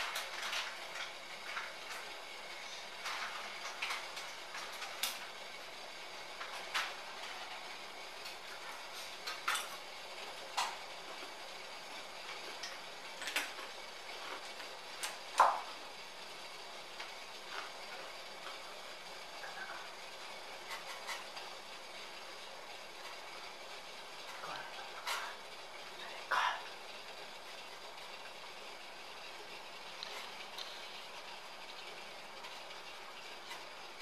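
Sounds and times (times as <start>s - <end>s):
gas burner hiss: 0.0s - 34.0s
pot ticking and popping: 9.2s - 34.0s.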